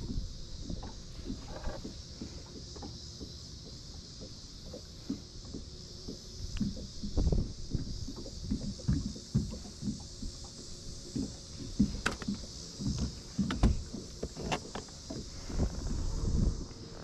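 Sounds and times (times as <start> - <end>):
steady hiss: 0.0 - 17.0
sharp tackle clicks: 11.8 - 15.0.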